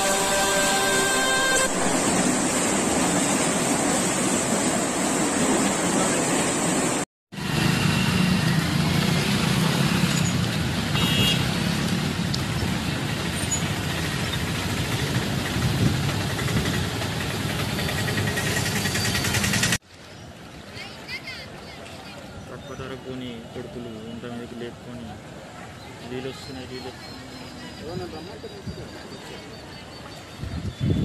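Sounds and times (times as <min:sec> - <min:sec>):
vehicles driving through water: 0:07.4 - 0:30.6.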